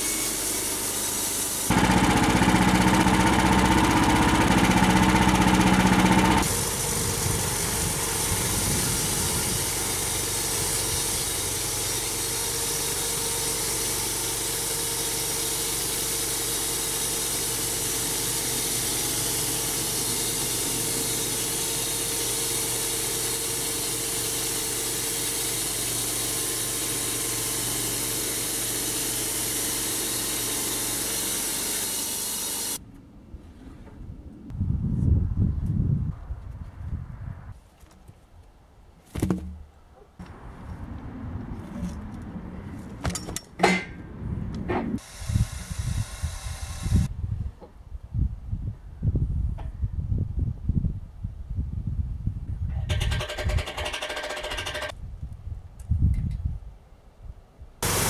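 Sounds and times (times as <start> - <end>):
band saw cutting wood: 0.0 - 32.8
sawmill engine running: 0.0 - 32.8, 45.0 - 47.1, 53.0 - 54.9.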